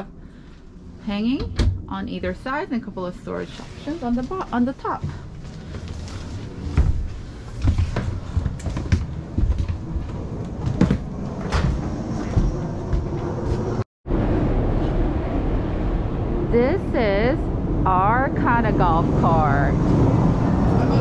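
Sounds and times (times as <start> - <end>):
footsteps on camper floor: 5.0 - 13.8.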